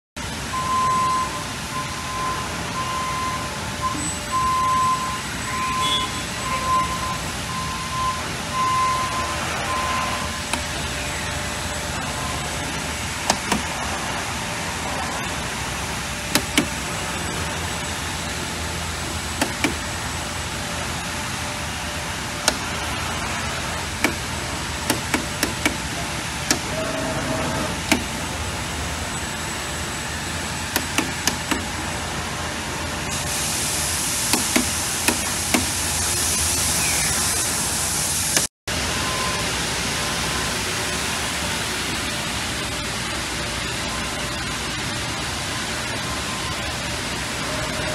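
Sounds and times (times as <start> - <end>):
cutting machine humming: 9.4 - 33.2
sharp mechanical clicks and knocks: 13.2 - 13.8, 16.3 - 17.0, 19.3 - 20.0, 22.4 - 23.0, 23.9 - 26.8, 27.8 - 28.2, 30.7 - 31.8, 34.2 - 35.8.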